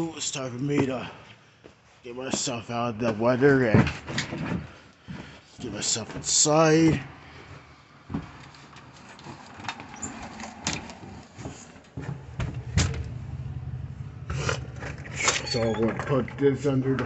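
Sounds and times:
handling knocks and clicks: 0:08.1 - 0:13.2
low steady hum: 0:12.0 - 0:17.0.

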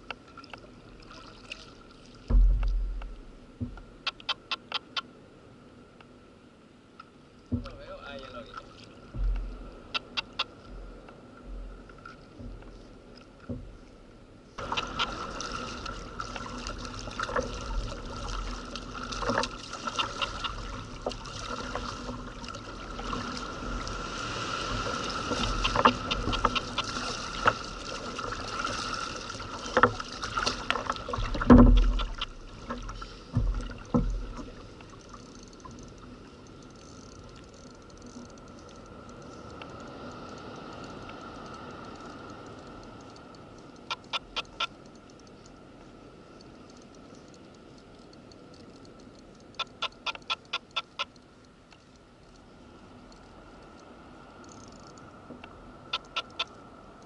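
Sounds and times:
paddle strokes splashing water: 0:00.0 - 0:05.0, 0:07.5 - 0:44.8
quiet water sound: 0:00.0 - 0:57.0
paddle and hull knocks: 0:02.2 - 0:04.5, 0:07.5 - 0:12.8, 0:13.4 - 0:13.8, 0:14.6 - 0:23.7, 0:24.7 - 0:35.0.

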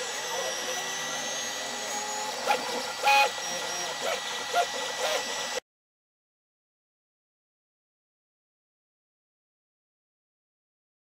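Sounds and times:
stepper motors whining: 0:00.0 - 0:05.6.

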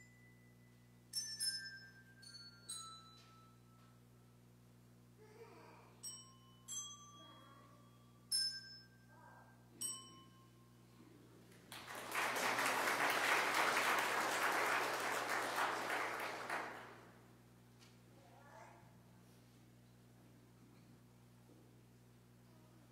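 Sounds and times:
applause: 0:11.5 - 0:17.2.

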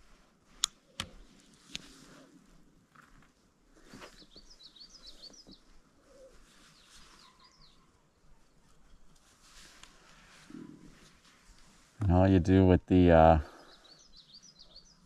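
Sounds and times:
faint bird chirping: 0:03.8 - 0:11.2, 0:12.5 - 0:15.0.

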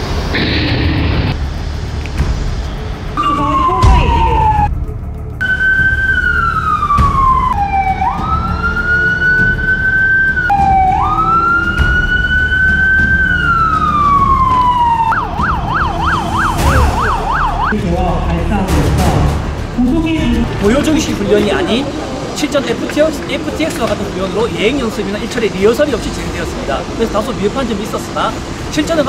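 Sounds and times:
low vehicle engine: 0:00.0 - 0:09.7
police siren wailing: 0:03.2 - 0:04.8, 0:05.4 - 0:17.8.

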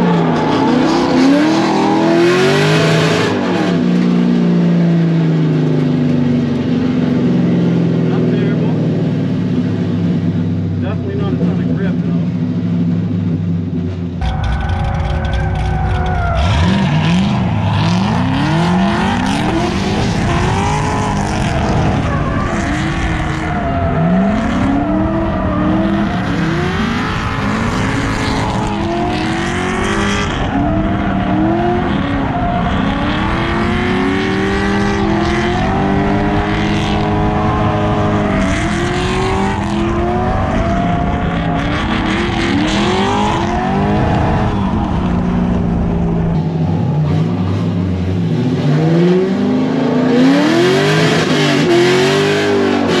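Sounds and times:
car engine revving: 0:00.0 - 0:53.0
tyre squeal: 0:14.2 - 0:45.3.

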